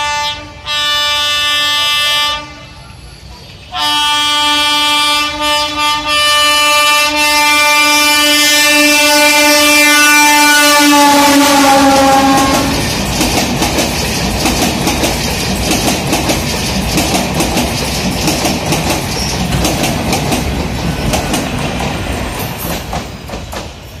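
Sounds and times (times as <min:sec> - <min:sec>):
train horn: 0:00.0 - 0:03.0, 0:03.7 - 0:12.9
train wheels clickety-clack: 0:09.3 - 0:24.0.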